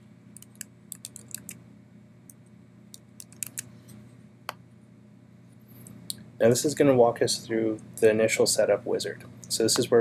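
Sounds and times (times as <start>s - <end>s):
low steady hum: 0.0s - 10.0s
keyboard typing clicks: 0.4s - 1.6s, 2.9s - 3.7s.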